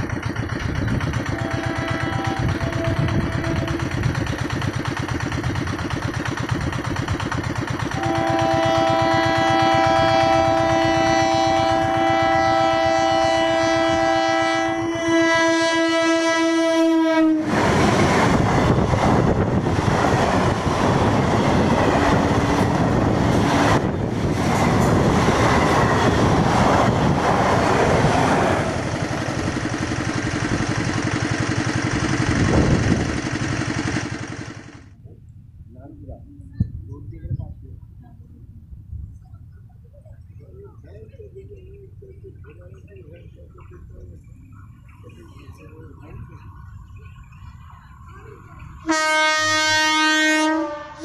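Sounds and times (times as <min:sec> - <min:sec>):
wheels clacking on rails: 0:00.0 - 0:35.1, 0:39.1 - 0:50.4
train air horn blast: 0:01.3 - 0:04.2, 0:07.9 - 0:17.6, 0:48.8 - 0:51.0.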